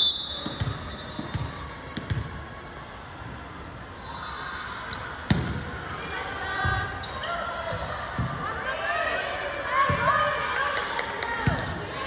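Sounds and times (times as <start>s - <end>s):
ball bouncing on gym floor: 0.4s - 2.3s.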